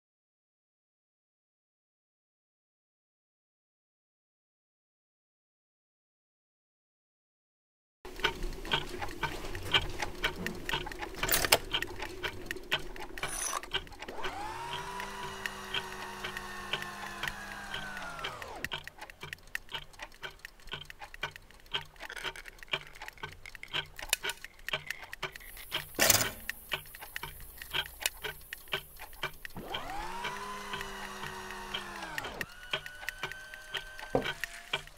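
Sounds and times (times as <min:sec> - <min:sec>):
clocks ticking: 0:08.1 - 0:34.9
motor whirring: 0:10.8 - 0:18.9, 0:25.3 - 0:34.9.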